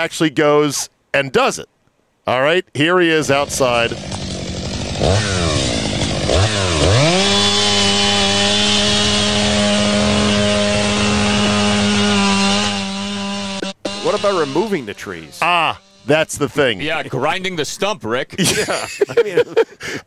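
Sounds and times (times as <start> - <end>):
chainsaw cutting tree trunk: 3.2 - 17.0.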